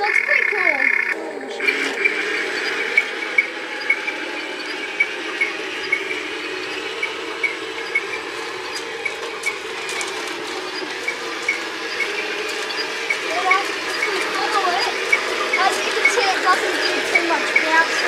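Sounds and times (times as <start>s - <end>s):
regular clicking: 0.0s - 18.0s
toy tank motor drone: 0.0s - 18.0s.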